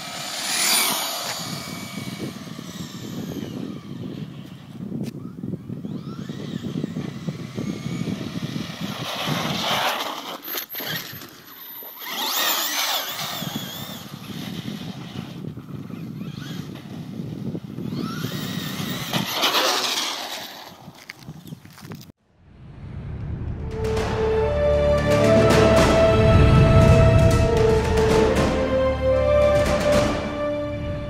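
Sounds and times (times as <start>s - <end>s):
electric motor whining: 0.0s - 21.0s
low rumble: 22.3s - 31.0s.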